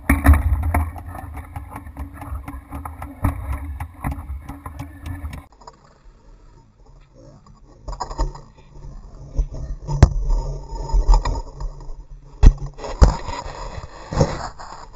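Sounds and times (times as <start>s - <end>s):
wind buffeting microphone: 0.0s - 5.5s.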